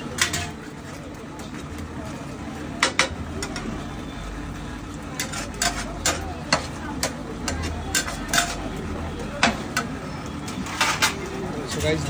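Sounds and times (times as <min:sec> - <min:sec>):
metal spatula scraping griddle: 0:00.0 - 0:01.0, 0:05.1 - 0:08.8, 0:10.5 - 0:12.0.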